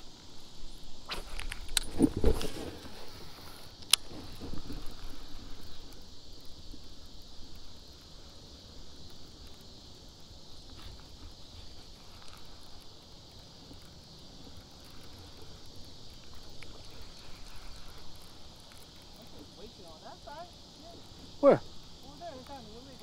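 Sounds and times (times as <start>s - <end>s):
high insect drone: 0.0s - 23.0s.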